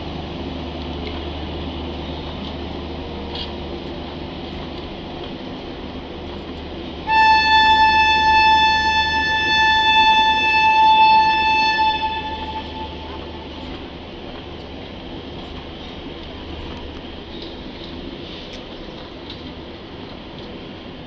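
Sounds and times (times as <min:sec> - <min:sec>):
passenger coaches rumbling past: 0:00.0 - 0:21.0
locomotive horn blast: 0:07.0 - 0:13.5.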